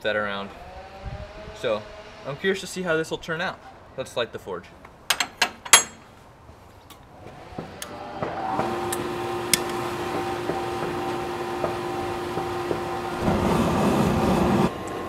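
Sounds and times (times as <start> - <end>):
gas forge roaring: 0.3 - 3.6, 7.1 - 15.0
metal clinks: 5.1 - 6.2.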